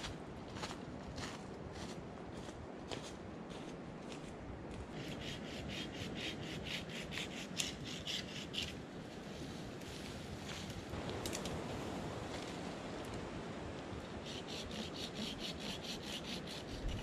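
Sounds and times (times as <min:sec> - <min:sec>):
hand saw cutting branch: 0:05.0 - 0:08.8, 0:14.2 - 0:17.0.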